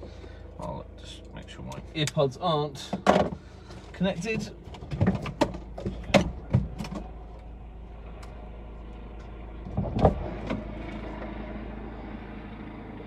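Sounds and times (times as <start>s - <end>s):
steady low hum: 0.0s - 13.0s
knocks and clicks of handling: 2.9s - 7.1s.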